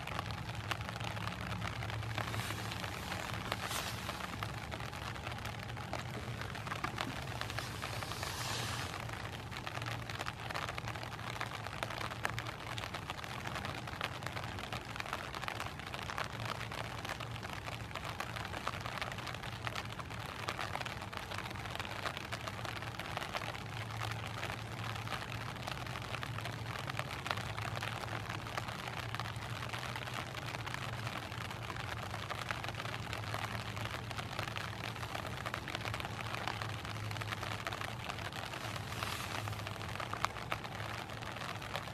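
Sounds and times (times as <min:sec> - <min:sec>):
low steady hum: 0:00.0 - 0:15.9
rain hitting an umbrella: 0:00.0 - 0:41.9.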